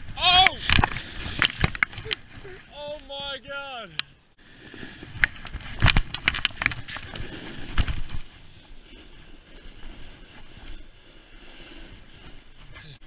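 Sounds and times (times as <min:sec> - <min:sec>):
snowboard sliding through snow: 0:06.6 - 0:12.7.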